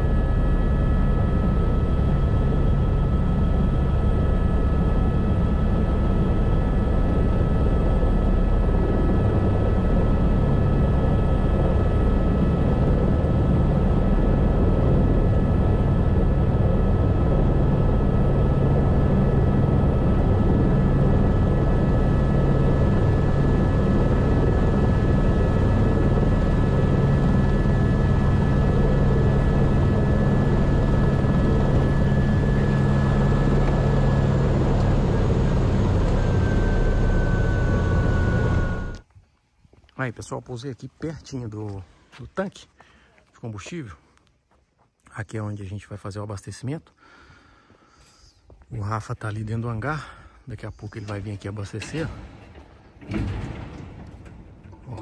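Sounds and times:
helicopter running: 0:00.0 - 0:39.0.

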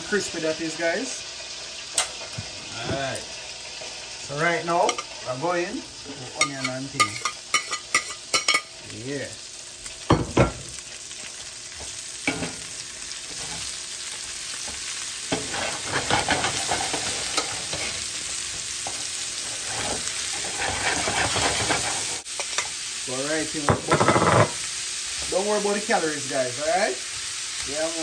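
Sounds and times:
onions sizzling in fat: 0:00.0 - 0:28.0
metal spoon scraping pan: 0:06.4 - 0:08.7, 0:15.3 - 0:18.0, 0:19.4 - 0:22.7.

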